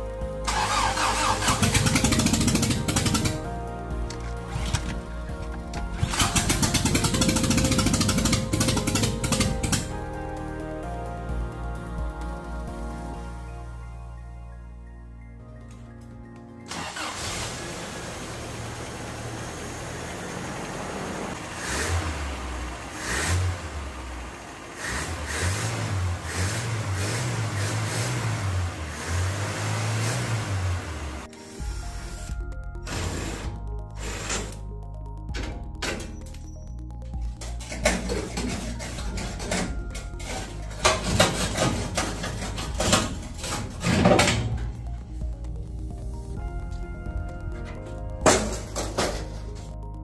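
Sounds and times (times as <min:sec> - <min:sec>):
car engine idling and revving: 0:00.0 - 0:13.8, 0:16.7 - 0:50.0
metal clanks and rattles: 0:01.6 - 0:10.0, 0:37.2 - 0:45.1, 0:47.5 - 0:49.8.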